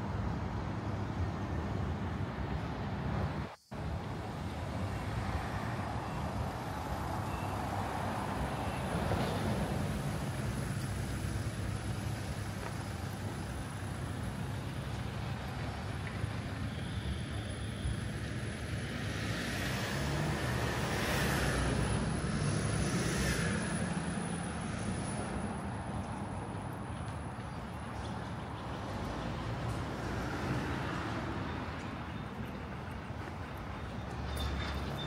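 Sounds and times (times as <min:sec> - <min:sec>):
traffic engine rumble: 0:00.0 - 0:35.0
vehicle passing by: 0:18.8 - 0:26.1.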